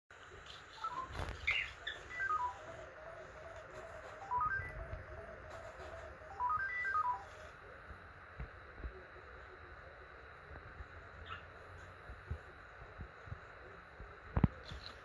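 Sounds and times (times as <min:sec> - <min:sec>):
low level string of beeps: 0:00.8 - 0:07.6.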